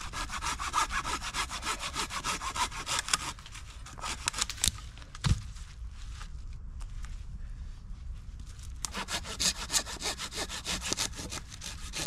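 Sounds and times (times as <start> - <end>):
hand saw cutting wood: 0.0 - 4.4, 8.8 - 12.0.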